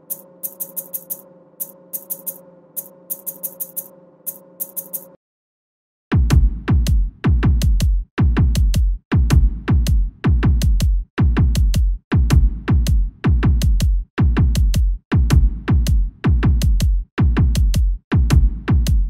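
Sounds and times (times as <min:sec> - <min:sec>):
music with heavy bass beat: 0:06.1 - 0:19.0.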